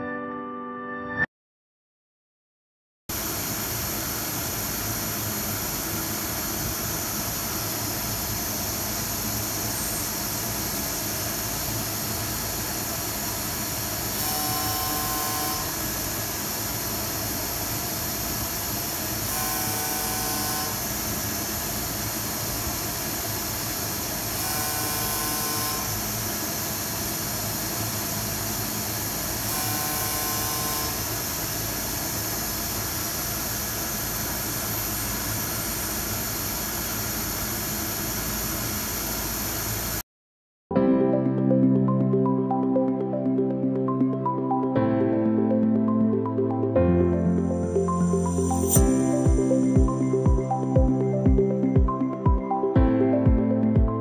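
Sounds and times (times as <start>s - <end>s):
machine hum and hiss: 3.1s - 40.0s
short multi-tone whine: 5.8s - 18.0s, 18.7s - 26.8s, 27.4s - 31.6s.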